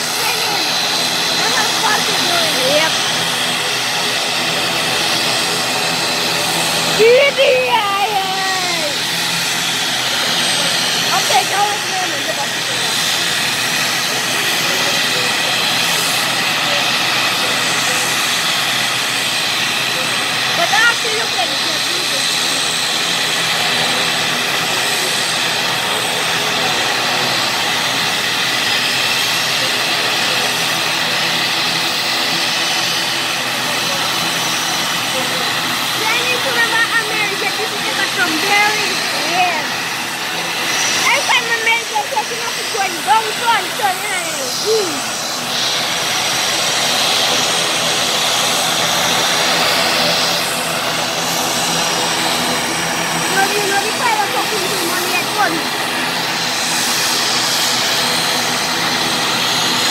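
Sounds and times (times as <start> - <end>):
high hissing whine: 0.0 - 59.9
turboprop engines droning: 0.0 - 59.9.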